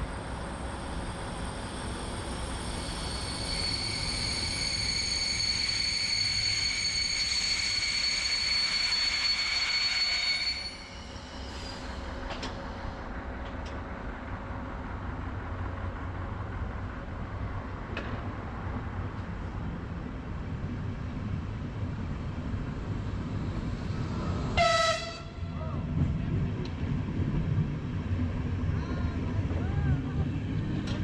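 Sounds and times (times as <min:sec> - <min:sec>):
train rumbling: 0:00.0 - 0:31.0
train wheels squealing: 0:00.1 - 0:13.1.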